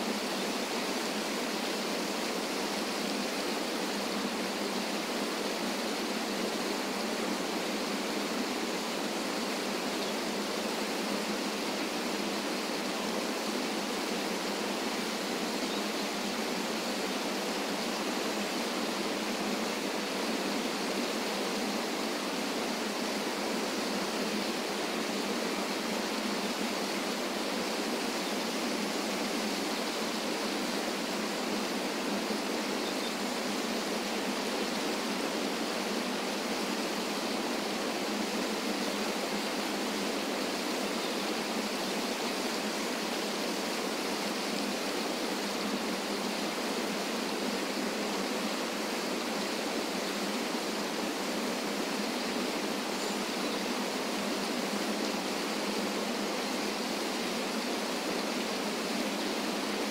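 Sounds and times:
waterfall pouring over rocks: 0:00.0 - 0:59.9.

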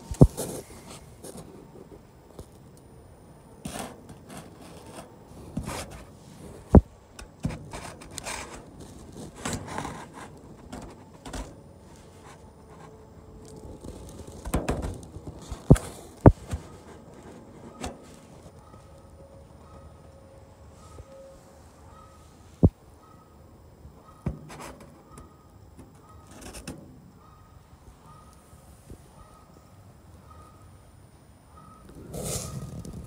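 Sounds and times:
phone scraping against metal: 0:25.9 - 0:26.8.

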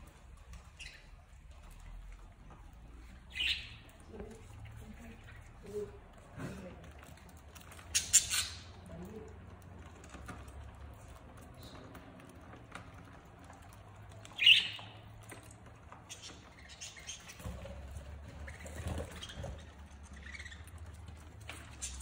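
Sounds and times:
light ticking and scratching: 0:00.0 - 0:22.0
budgerigars chirping: 0:03.3 - 0:03.9, 0:14.4 - 0:15.0, 0:16.1 - 0:17.5.

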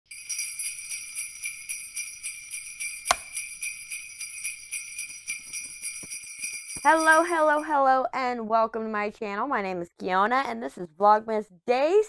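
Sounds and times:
sleigh bells jingling: 0:00.1 - 0:07.8.

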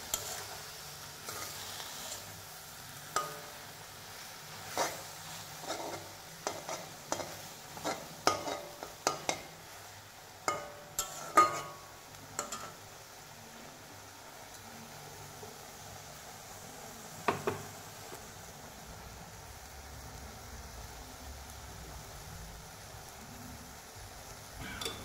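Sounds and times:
spatula scraping metal wok: 0:00.0 - 0:09.5, 0:10.5 - 0:12.8
low sizzle: 0:00.0 - 0:25.0.

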